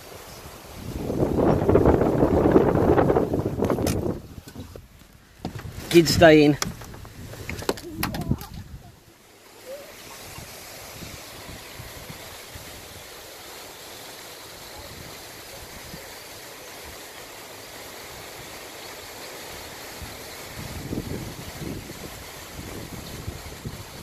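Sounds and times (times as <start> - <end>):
wind noise on microphone: 0.3 - 9.0, 10.0 - 13.1, 19.9 - 24.0.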